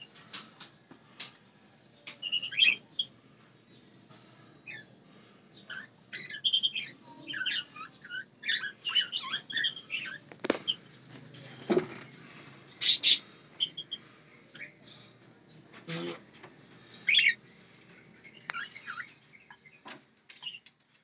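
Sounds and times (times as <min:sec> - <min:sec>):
budgerigars chirping and chattering: 0:02.0 - 0:03.2, 0:04.6 - 0:04.9, 0:05.5 - 0:11.1, 0:12.6 - 0:15.2, 0:15.9 - 0:17.5, 0:18.2 - 0:20.7.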